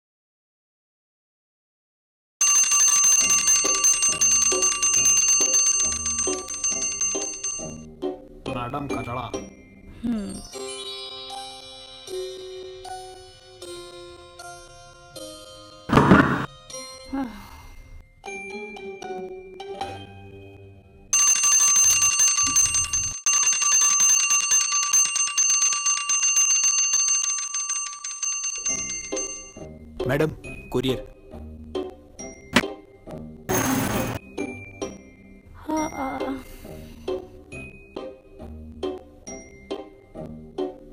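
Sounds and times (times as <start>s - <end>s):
doorbell ringing: 2.4s - 7.9s, 21.1s - 29.7s
background music: 3.4s - 22.3s, 28.5s - 40.9s.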